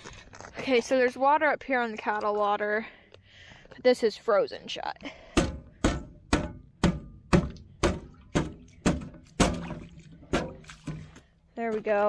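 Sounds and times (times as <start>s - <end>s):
boot kicking metal lid: 5.4s - 11.2s.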